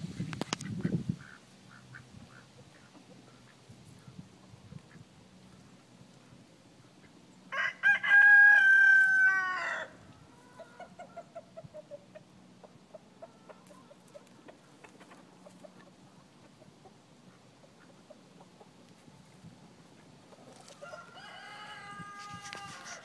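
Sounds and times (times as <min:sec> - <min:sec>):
chicken clucking: 0:00.7 - 0:07.2, 0:10.3 - 0:23.0
rooster crowing: 0:07.5 - 0:10.8, 0:20.7 - 0:23.0.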